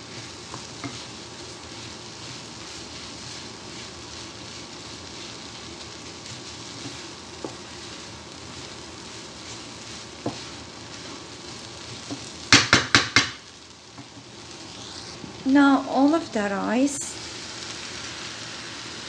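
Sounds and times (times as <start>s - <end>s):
wooden spatula scraping a pan: 0.0s - 5.5s, 6.1s - 12.3s
vegetables sizzling in a frying pan: 0.0s - 19.0s
spatula knocking on a pan: 12.1s - 13.4s.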